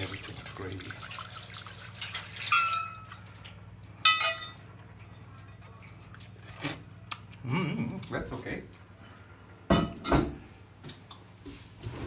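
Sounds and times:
liquid splashing: 0.0s - 7.3s
metal pot clinking on pan: 2.4s - 3.1s, 4.0s - 4.6s.

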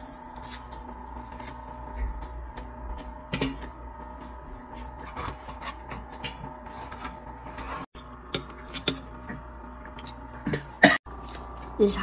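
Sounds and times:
knife and fork scraping a plate: 4.8s - 9.0s.

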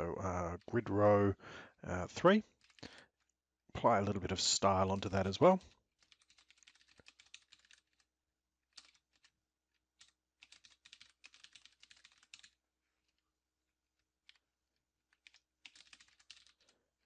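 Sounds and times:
faint keyboard typing: 2.2s - 3.2s, 4.7s - 8.1s, 8.7s - 13.2s, 14.0s - 14.4s, 15.0s - 17.0s.

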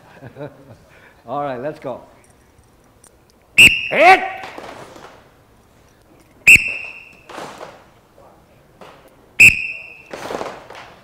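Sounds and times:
whistle blasts: 3.6s - 4.4s, 6.4s - 7.3s, 9.4s - 10.2s.

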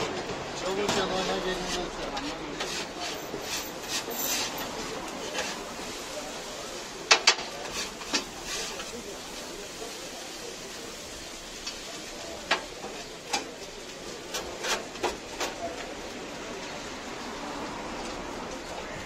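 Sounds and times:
steady background noise: 0.0s - 19.0s
metal spatula scraping grill tray: 0.8s - 6.2s, 7.1s - 9.1s, 14.2s - 15.6s.

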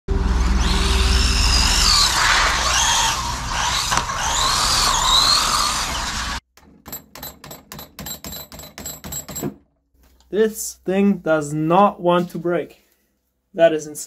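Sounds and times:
electric motor whining: 0.1s - 6.4s.

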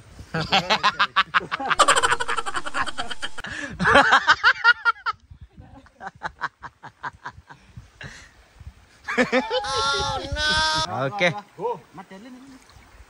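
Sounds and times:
people laughing: 0.4s - 5.1s, 9.1s - 10.8s.

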